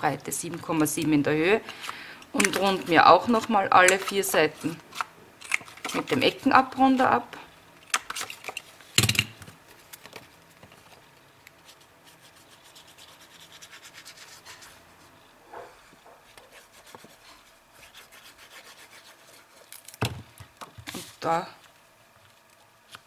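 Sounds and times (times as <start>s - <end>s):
glue sponge rubbing on paper: 11.6s - 14.8s, 16.2s - 19.7s.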